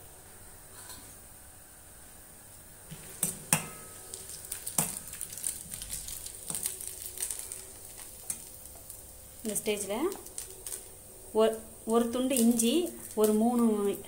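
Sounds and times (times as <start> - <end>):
spices sizzling in oil: 2.9 - 14.0.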